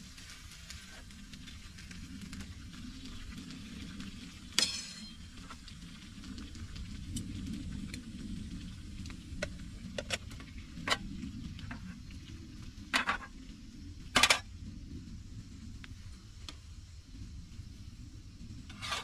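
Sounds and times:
low steady rumble: 0:00.0 - 0:19.0
cookware clinking and scraping: 0:04.6 - 0:05.2.

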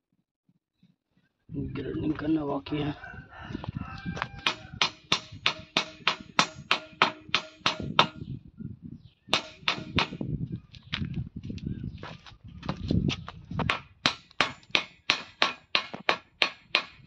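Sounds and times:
hammer striking steel frame: 0:04.3 - 0:08.2, 0:09.3 - 0:10.2, 0:13.7 - 0:17.0.

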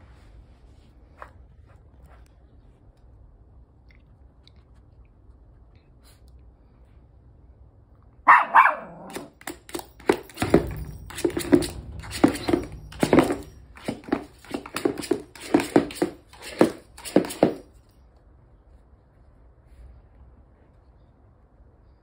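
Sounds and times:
loud sharp sound: 0:09.1 - 0:16.3
toys knocking against basket: 0:09.1 - 0:17.7.

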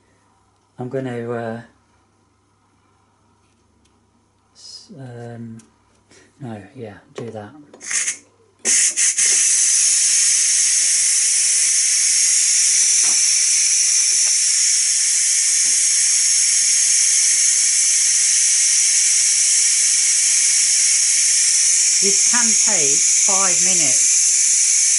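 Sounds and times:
pressure cooker steam hissing: 0:07.8 - 0:24.9
short steam spurts: 0:07.8 - 0:24.9.

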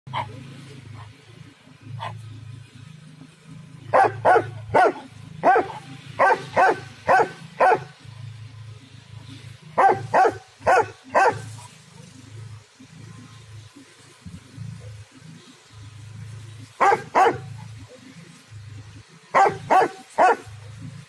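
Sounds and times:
dog barking loudly: 0:00.1 - 0:00.4, 0:03.9 - 0:08.0, 0:09.8 - 0:11.6, 0:16.8 - 0:17.7, 0:19.3 - 0:20.6.

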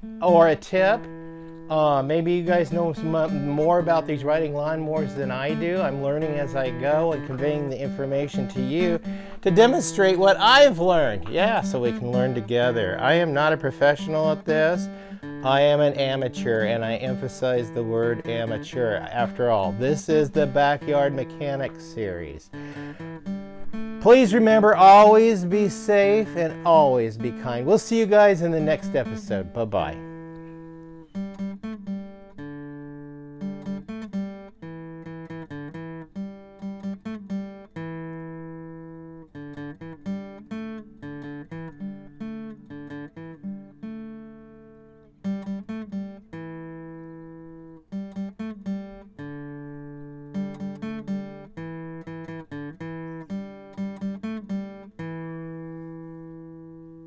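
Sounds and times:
acoustic guitar plucking: 0:00.0 - 0:57.0.

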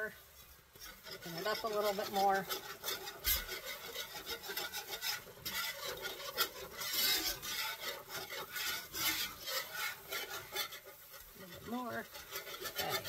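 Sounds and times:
whisk scraping against a pan: 0:00.0 - 0:13.0.

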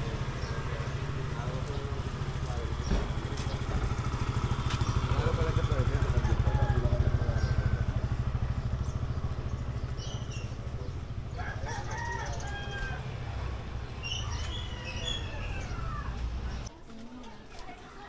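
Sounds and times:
motorcycle engine running: 0:00.0 - 0:16.7
rooster crowing: 0:06.0 - 0:08.2, 0:11.3 - 0:13.4.

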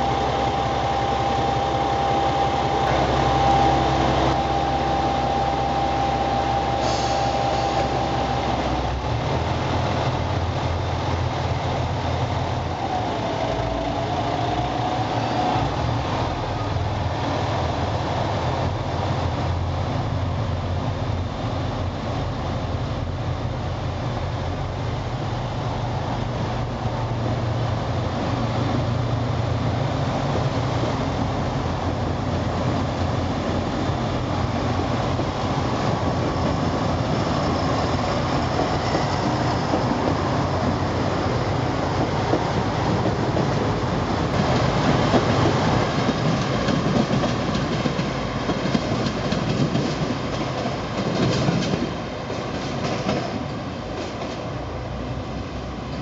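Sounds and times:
steady high tone: 0:00.0 - 0:08.6
diesel train engine rumble: 0:00.0 - 0:56.0
train cars rolling past: 0:00.0 - 0:56.0.

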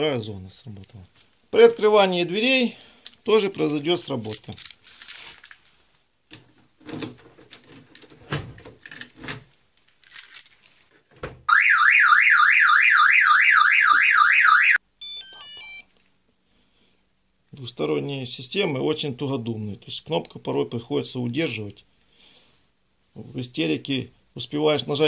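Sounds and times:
warbling car alarm siren: 0:11.5 - 0:15.7.

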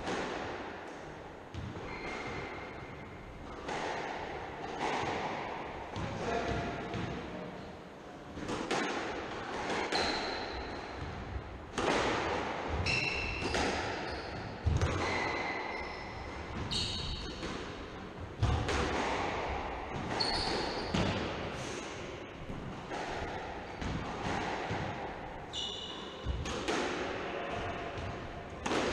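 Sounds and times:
squash ball knocks: 0:08.4 - 0:15.5, 0:16.3 - 0:21.4, 0:26.2 - 0:28.9
shoes squeaking on wooden floor: 0:20.2 - 0:21.0.

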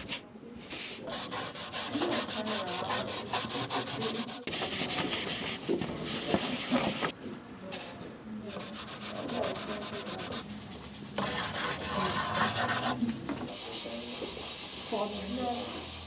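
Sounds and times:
pencil shaved with a blade: 0:01.1 - 0:05.6, 0:11.2 - 0:13.0
drawing tools scraping on paper: 0:01.1 - 0:07.1, 0:08.5 - 0:15.8.

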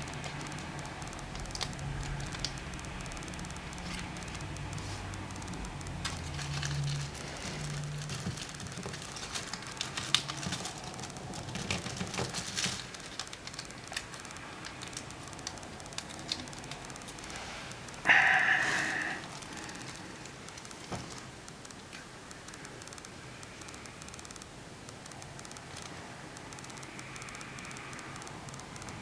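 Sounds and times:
paper crackling and rustling: 0:00.0 - 0:18.0.

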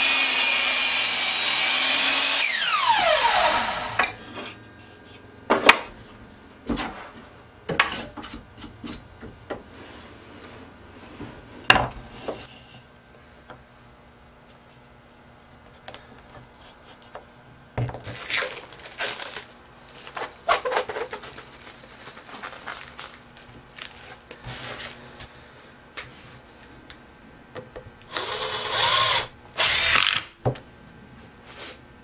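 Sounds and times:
cordless drill driving a screw: 0:28.0 - 0:30.3.

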